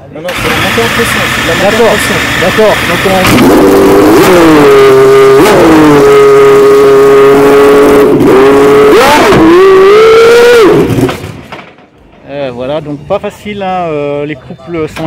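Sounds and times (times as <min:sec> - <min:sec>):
race car engine idling: 0:00.1 - 0:08.6.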